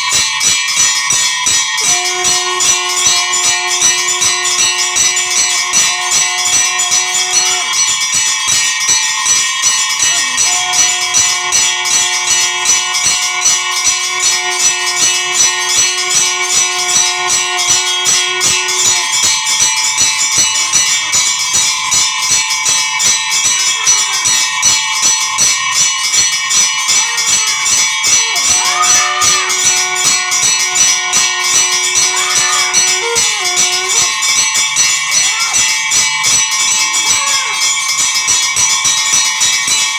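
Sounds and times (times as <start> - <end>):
bells ringing rapidly: 0.0 - 39.9
long held low tone: 1.8 - 7.7, 10.2 - 19.2, 28.2 - 34.3.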